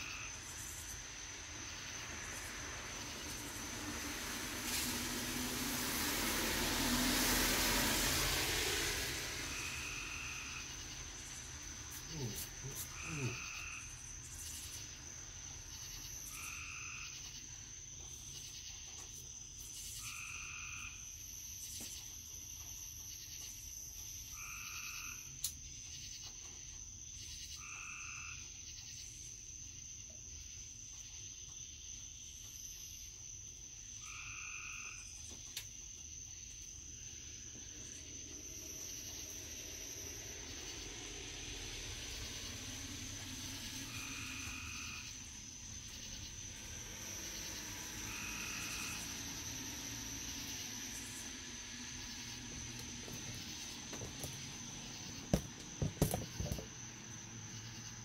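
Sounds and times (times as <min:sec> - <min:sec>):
high insect drone: 0:00.0 - 0:58.0
car approaching: 0:00.2 - 0:15.2, 0:37.2 - 0:58.0
frog calling: 0:09.4 - 0:15.0, 0:24.3 - 0:25.3, 0:34.0 - 0:35.1, 0:37.6 - 0:58.0.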